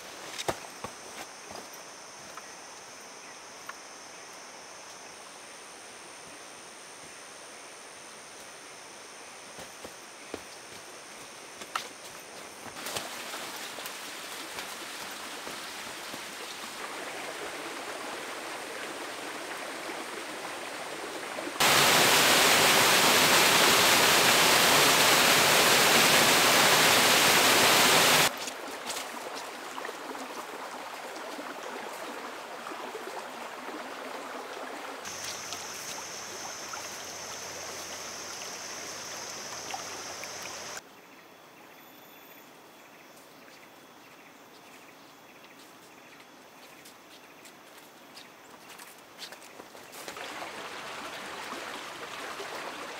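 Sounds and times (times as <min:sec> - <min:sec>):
flowing stream water: 0:10.7 - 0:40.8, 0:50.0 - 0:52.9.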